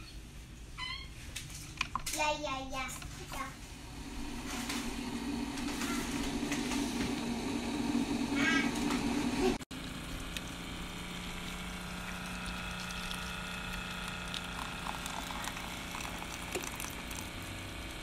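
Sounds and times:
brewer pump hum: 0:01.7 - 0:18.0
water trickling into cup: 0:10.2 - 0:17.9.

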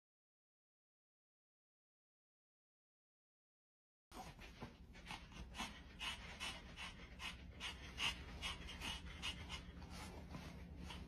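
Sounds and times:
dog panting softly: 0:04.1 - 0:11.0.

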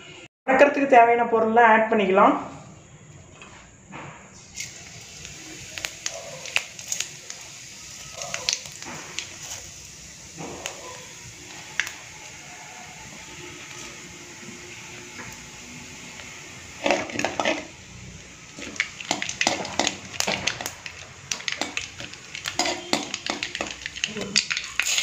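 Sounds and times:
seeds sizzling in hot oil: 0:04.4 - 0:25.0
metal spoon scraping a pan: 0:16.8 - 0:17.8, 0:21.3 - 0:25.0.

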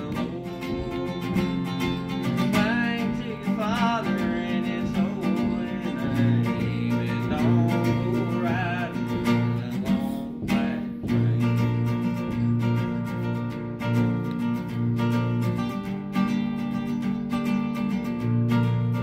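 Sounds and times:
young man singing: 0:00.0 - 0:13.2
acoustic guitar strumming chords: 0:00.0 - 0:19.0.

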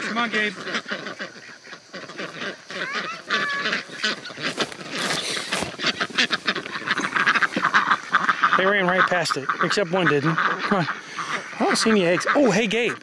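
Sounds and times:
ducks quacking: 0:00.0 - 0:13.0
rustling: 0:00.6 - 0:08.6.

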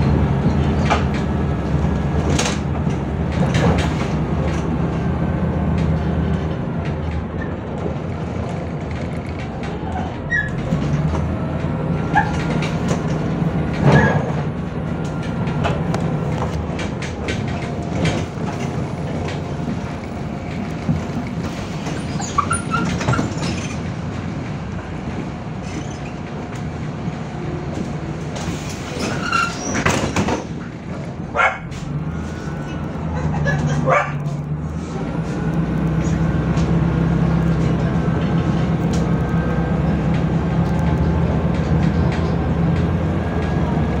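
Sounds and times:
rattles and knocks from bus body: 0:00.0 - 0:34.5
bus engine and road drone: 0:00.0 - 0:44.0.

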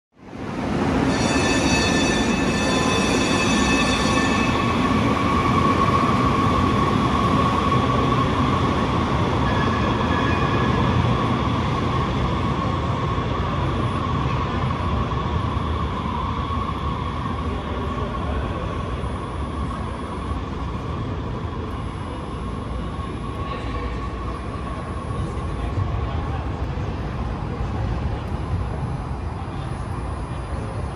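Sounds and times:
high ringing tones: 0:01.0 - 0:05.2.

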